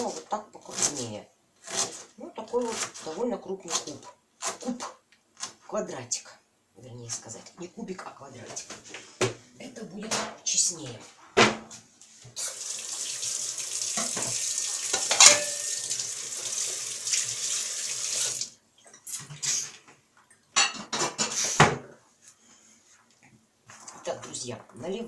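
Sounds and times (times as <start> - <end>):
tap running into sink: 13.8 - 15.9
crockery and frying pan clanking: 13.9 - 16.0
dishes clinking: 14.0 - 16.0, 20.6 - 21.4.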